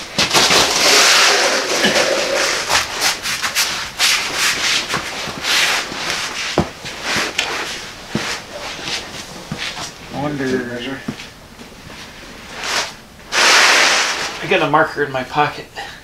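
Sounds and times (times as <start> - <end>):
creeper sliding on floor: 0.2 - 10.0, 12.5 - 14.7
mat dragged across concrete: 0.4 - 8.8, 12.5 - 14.6.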